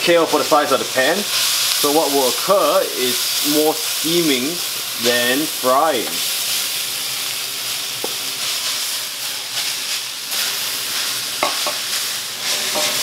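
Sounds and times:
greens sizzling in a wok: 0:00.0 - 0:13.0
spoon knocking on pan: 0:11.4 - 0:11.8.

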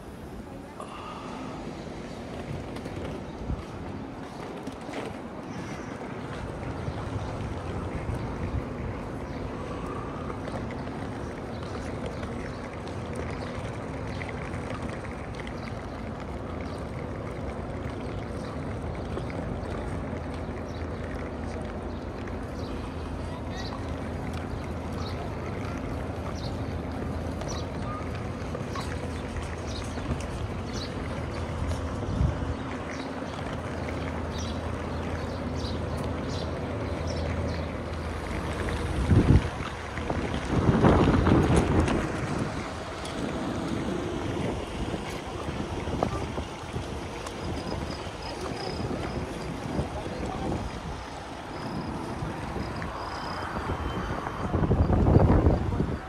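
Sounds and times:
distant traffic: 0:00.0 - 0:56.0
steady wind noise: 0:00.0 - 0:56.0
wind on microphone: 0:24.7 - 0:33.7, 0:37.5 - 0:56.0.

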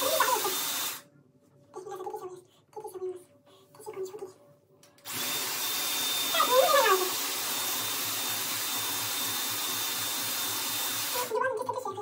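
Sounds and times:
hot-air styler rushing air: 0:00.0 - 0:01.0, 0:05.0 - 0:11.4.

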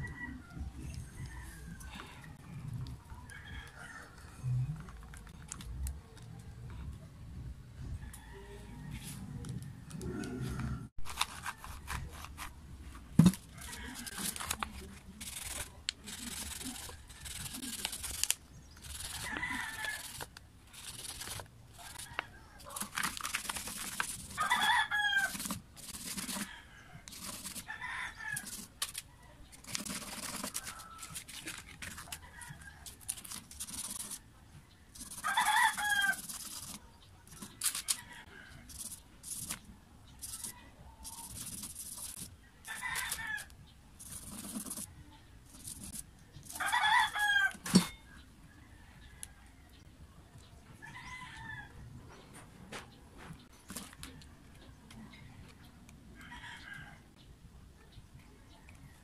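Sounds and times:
rooster crowing: 0:03.3 - 0:04.4, 0:08.1 - 0:09.2, 0:18.9 - 0:20.2, 0:24.3 - 0:25.5, 0:35.0 - 0:36.6, 0:46.5 - 0:47.9
rubbing on sandpaper: 0:15.2 - 0:22.0, 0:41.1 - 0:43.2.

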